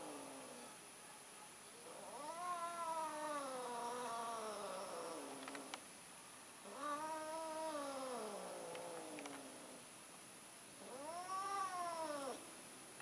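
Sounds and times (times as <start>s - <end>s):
cat yowling: 1.9s - 5.2s, 10.8s - 12.4s.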